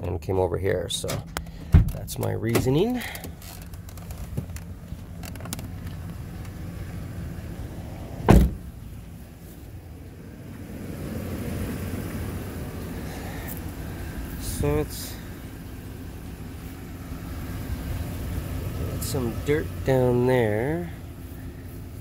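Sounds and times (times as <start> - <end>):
van engine idling: 0.0 - 22.0
car door thump: 1.1 - 2.7, 8.2 - 8.8.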